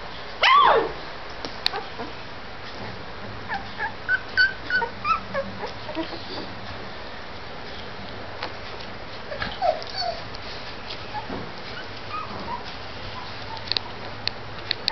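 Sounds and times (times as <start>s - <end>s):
puppies whimpering: 1.7s - 2.2s, 3.4s - 6.6s, 9.3s - 14.1s
puppy squeaks: 3.5s - 6.5s, 9.3s - 10.3s, 11.1s - 14.0s.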